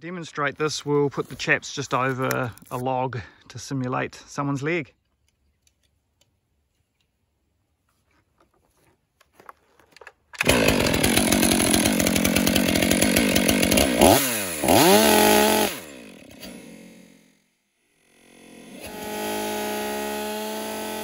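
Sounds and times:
chainsaw at full throttle: 10.4s - 21.0s.

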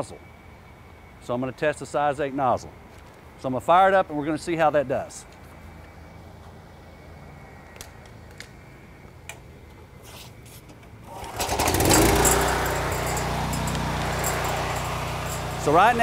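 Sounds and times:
small gasoline engine starting: 11.0s - 16.0s.

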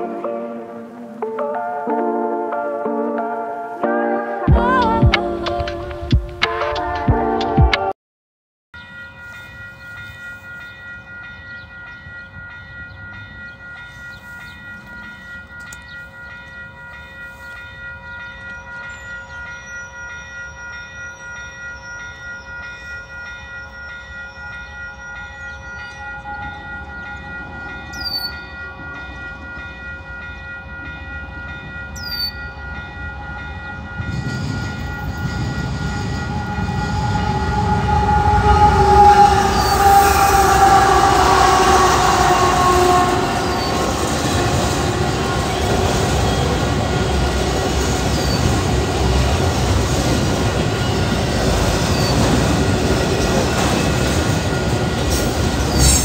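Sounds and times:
level crossing bell ringing: 8.8s - 52.1s
locomotive engine rumble: 32.5s - 56.0s
train horn: 33.2s - 49.7s.

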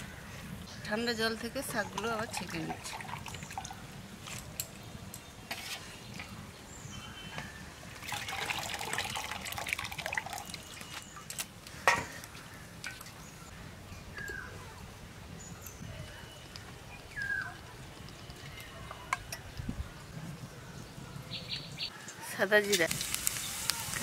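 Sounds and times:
water dripping and trickling: 1.6s - 4.7s, 7.8s - 13.5s, 22.8s - 24.0s.

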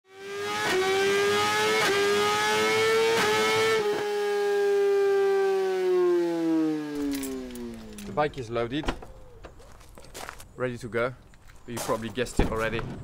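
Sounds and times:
motorcycle engine revving high: 0.1s - 8.2s.

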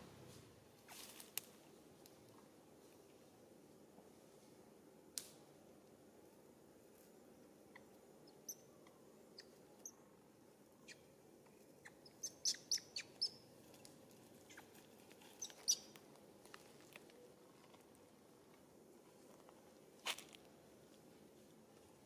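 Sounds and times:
faint low background hiss: 0.0s - 22.0s.

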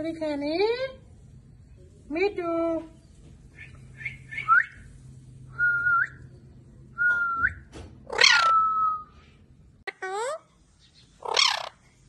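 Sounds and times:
parakeet squawk: 8.1s - 8.6s, 11.2s - 11.8s
parakeet chirping and whistling: 8.1s - 8.8s, 11.2s - 11.7s.

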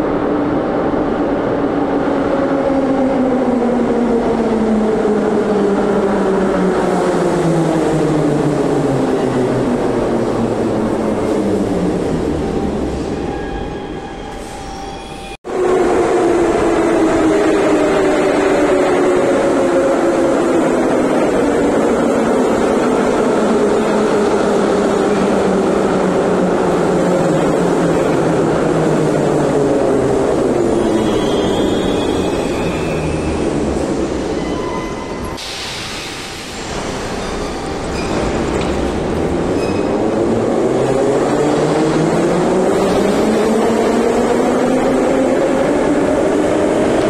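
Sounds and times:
air hiss of doors opening: 35.3s - 38.8s.

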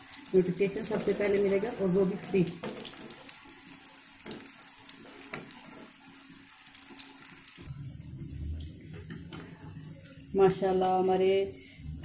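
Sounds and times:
food sizzling in hot oil: 0.0s - 11.9s
low hum: 7.7s - 10.4s.

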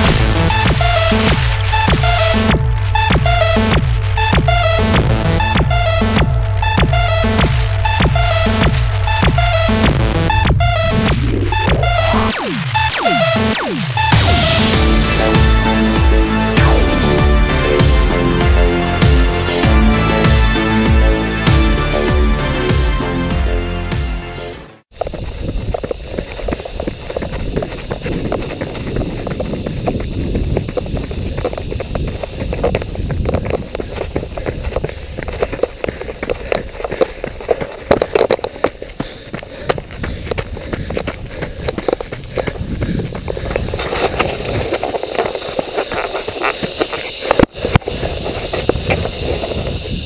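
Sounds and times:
running footsteps on dirt trail: 0.0s - 12.0s, 24.9s - 50.0s
rubbing and jostling noise: 39.8s - 49.6s.

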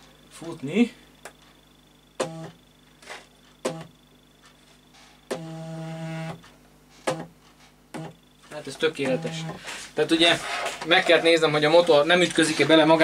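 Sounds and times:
stepper motor hum: 9.0s - 9.6s.

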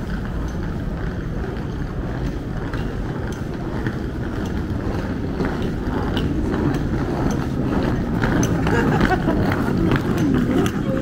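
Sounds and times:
low city rumble: 0.0s - 11.0s.

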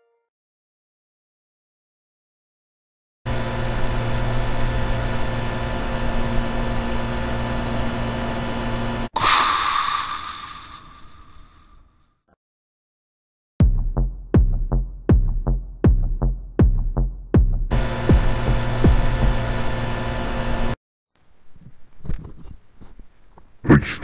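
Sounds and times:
electronic drum-machine music: 18.0s - 19.3s.

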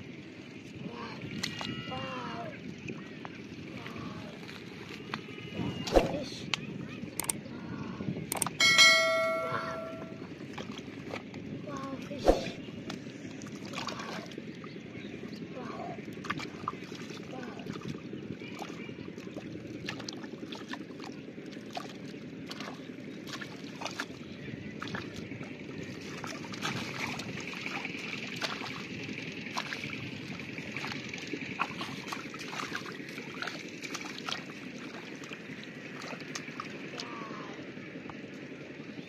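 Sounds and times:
water sloshing and splashing: 0.0s - 6.6s, 10.2s - 39.0s
mud squelching: 13.4s - 39.0s.

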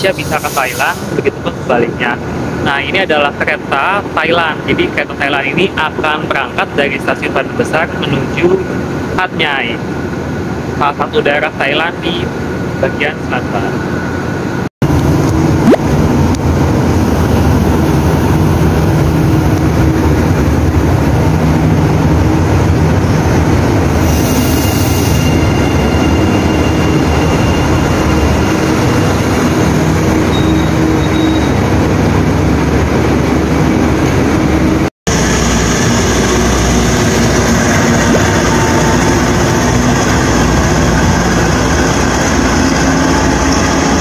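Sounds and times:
train air hiss: 0.0s - 1.2s, 24.0s - 25.3s
diesel locomotive engine running: 12.0s - 44.0s
electric train humming: 13.5s - 44.0s.

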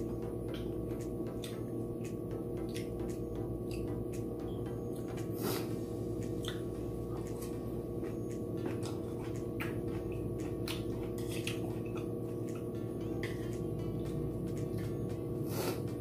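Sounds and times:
sustained low tones: 0.0s - 16.0s
chewing noises: 0.4s - 3.9s, 6.2s - 7.6s, 8.3s - 13.7s.

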